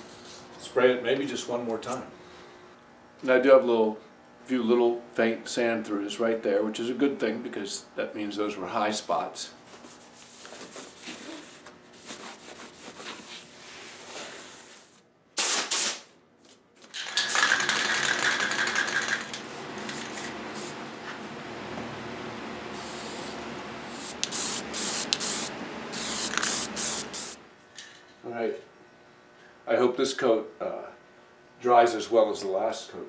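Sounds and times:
sandpaper rubbing by hand: 9.9s - 15.0s
aerosol spray can hissing: 17.1s - 20.8s, 22.8s - 27.4s.

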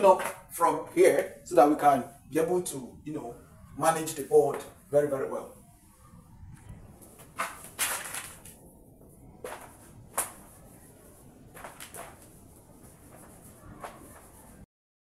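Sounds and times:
duster rubbing on whiteboard: 9.4s - 14.6s.

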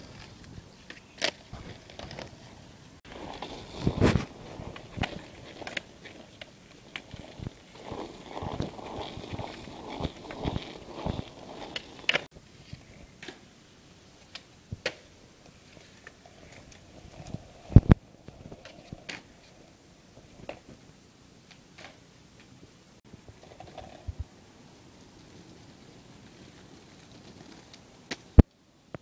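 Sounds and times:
skateboard wheels rolling on concrete: 0.0s - 29.0s
skateboard clacks: 0.2s - 12.3s.

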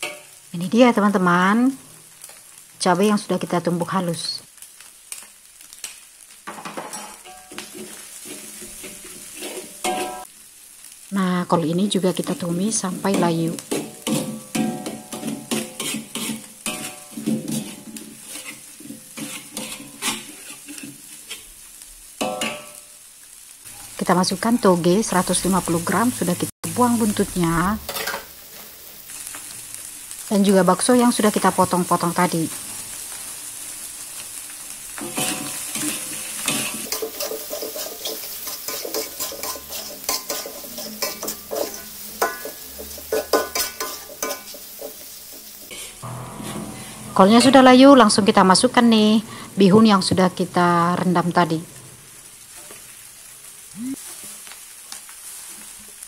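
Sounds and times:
cabbage sizzling: 0.0s - 56.0s
spatula scraping a metal wok: 6.9s - 10.3s, 13.6s - 21.6s, 27.0s - 29.3s, 35.0s - 48.3s.

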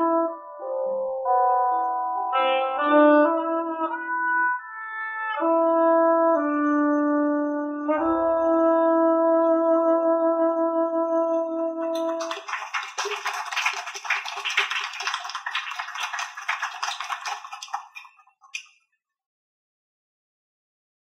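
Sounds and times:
audience applause: 11.9s - 18.2s.

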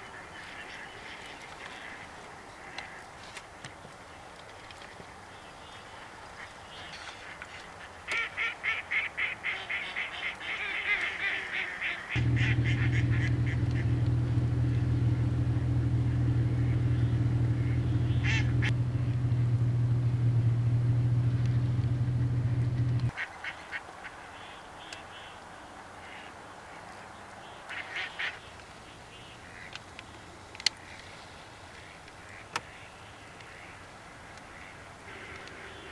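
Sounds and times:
ducks quacking: 7.0s - 14.2s, 16.2s - 18.7s, 31.8s - 35.9s
loud steady low hum: 12.2s - 23.1s.

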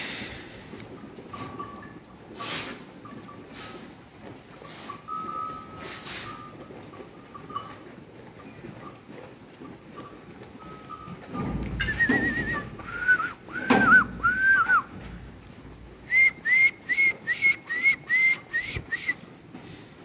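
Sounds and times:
person whistling: 11.8s - 14.9s, 16.1s - 19.2s.

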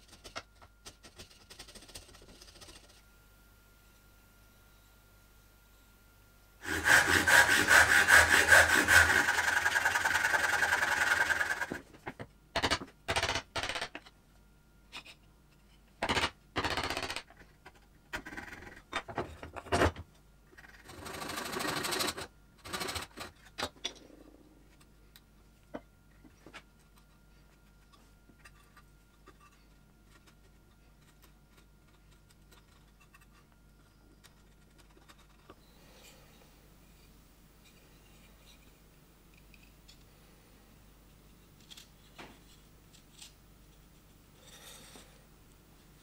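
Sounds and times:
chisel scraping wood: 6.6s - 11.8s
saw cutting wood: 6.6s - 11.8s.

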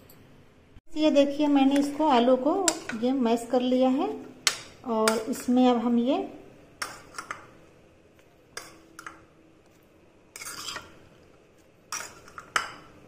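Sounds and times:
dishes and utensils clinking: 10.3s - 11.0s, 11.9s - 13.0s.

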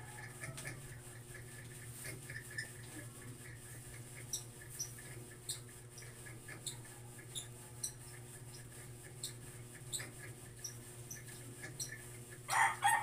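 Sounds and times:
short high-pitched squeaks: 4.2s - 12.6s.

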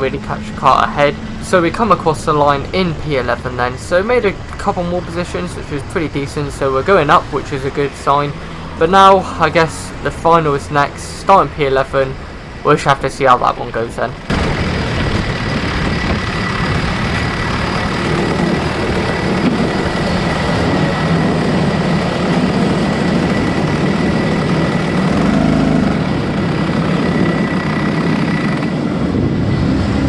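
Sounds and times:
kart engine running at low revs: 14.2s - 30.0s.

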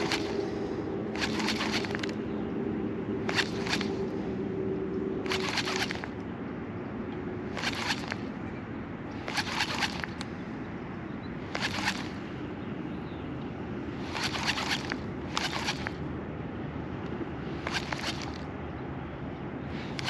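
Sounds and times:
fishing reel cranking: 0.0s - 2.2s, 3.2s - 4.2s, 5.2s - 6.2s, 7.5s - 8.4s, 9.2s - 10.3s, 11.5s - 12.2s, 14.0s - 16.0s, 17.6s - 18.5s
steady low rumble: 0.0s - 20.0s.

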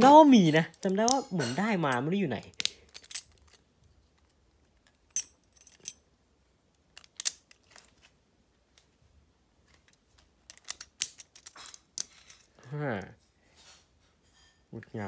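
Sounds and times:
plastic toy parts clicking: 2.4s - 3.6s, 6.8s - 7.9s, 10.4s - 12.5s.

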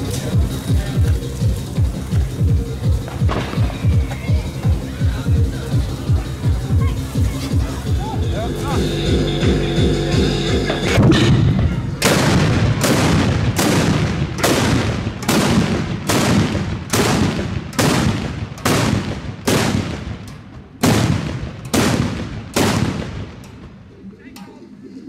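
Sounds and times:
carbide cannon bangs: 11.0s - 23.8s.

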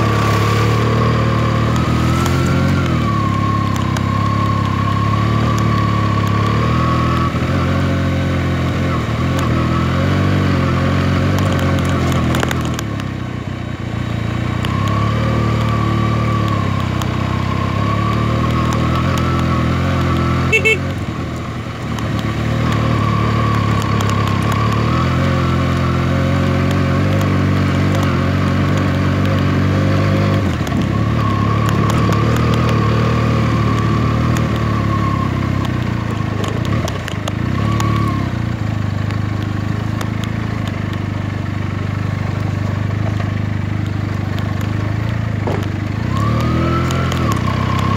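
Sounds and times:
motorcycle engine running: 0.0s - 47.9s.

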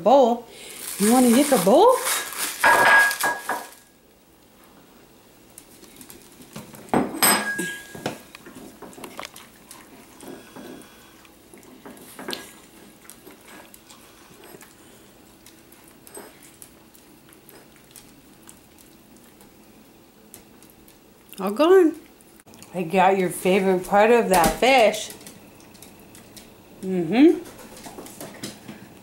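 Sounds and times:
dogs licking: 8.4s - 22.7s.

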